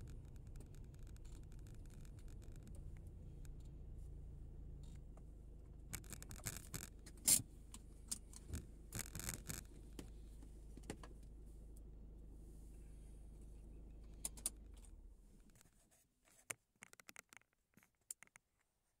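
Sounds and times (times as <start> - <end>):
car engine idling: 0.0 - 15.6
clicks and rattles: 16.8 - 18.5.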